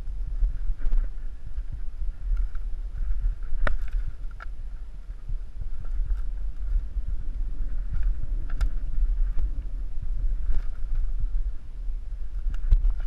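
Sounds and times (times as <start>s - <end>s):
wind rumbling on microphone: 0.0s - 13.0s
faint clicks: 2.2s - 5.2s, 12.4s - 13.0s.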